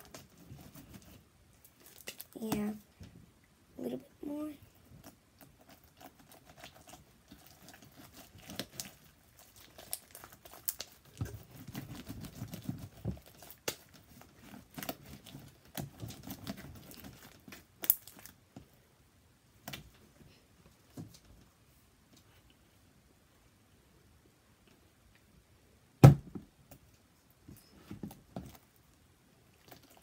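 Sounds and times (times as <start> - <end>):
slime squishing: 0.0 - 2.8, 4.8 - 18.5.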